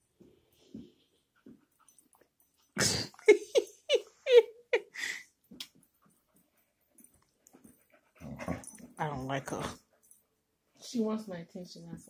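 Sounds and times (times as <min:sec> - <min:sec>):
dog snarling: 0:08.2 - 0:08.8.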